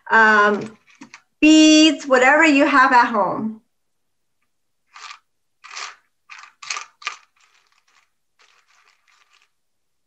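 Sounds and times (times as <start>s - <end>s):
craft supplies rustling and scraping: 4.9s - 9.6s.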